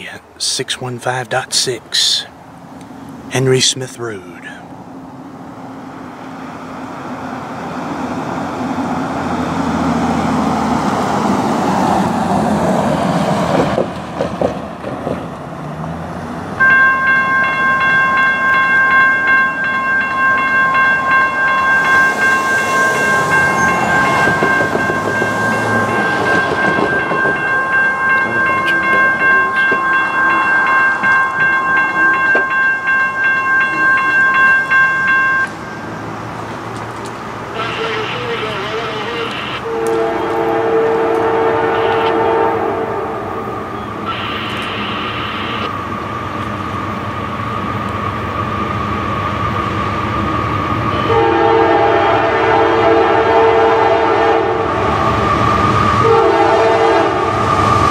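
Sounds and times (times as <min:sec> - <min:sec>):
freight train rumbling: 0:00.0 - 0:57.9
crossing warning bell ringing: 0:16.5 - 0:48.4, 0:49.5 - 0:57.9.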